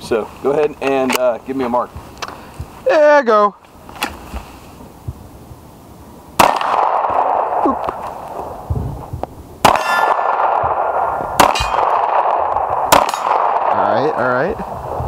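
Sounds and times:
pistol shots: 6.4 - 8.3, 9.6 - 14.2
steel target ringing: 9.7 - 10.4, 11.4 - 12.1, 12.9 - 13.5.

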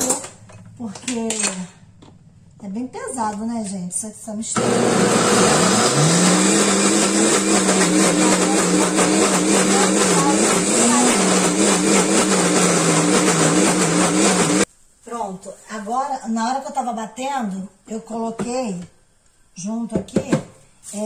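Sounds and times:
blender motor running: 4.6 - 14.7.

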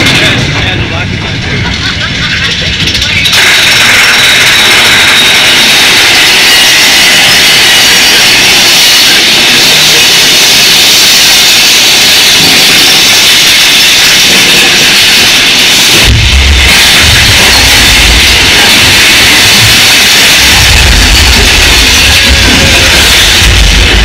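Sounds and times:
ride rushing roar: 14.7 - 24.0
show music: 16.0 - 24.0.

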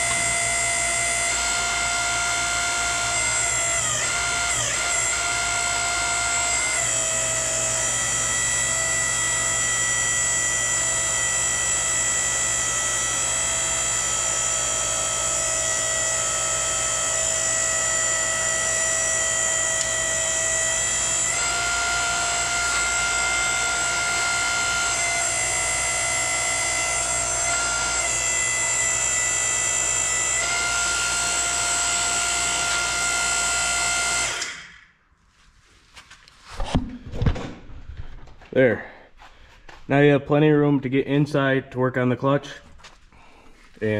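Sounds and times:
hydraulic power unit whining: 0.0 - 34.9.

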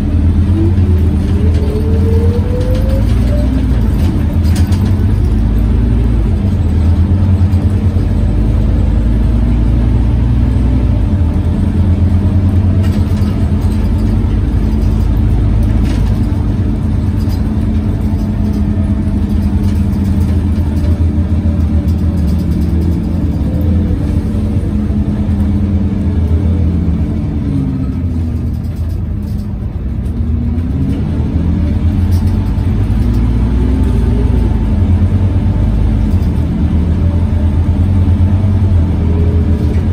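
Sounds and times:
bus cooling fan drone: 0.0 - 39.9
bus engine: 0.0 - 39.9.

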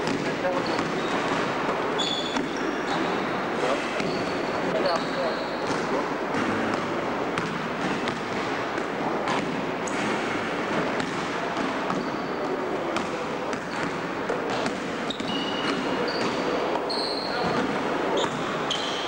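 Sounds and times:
basketball bouncing on gym floor: 0.0 - 3.2, 3.8 - 19.0
noisy hall background: 0.0 - 19.0
short high squeaks: 2.0 - 3.3, 15.1 - 17.5, 18.2 - 19.0.

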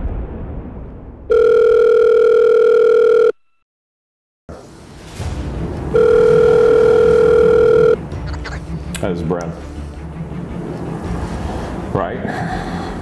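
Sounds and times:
telephone ringback tone: 1.3 - 3.5, 5.9 - 8.0.

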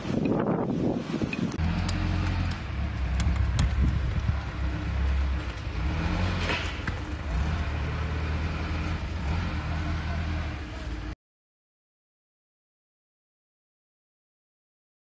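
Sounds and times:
car driving rumble inside cabin: 1.6 - 11.2.

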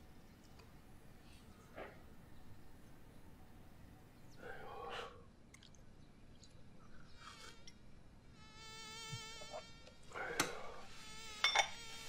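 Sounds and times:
flying insect buzzing: 7.2 - 12.0.

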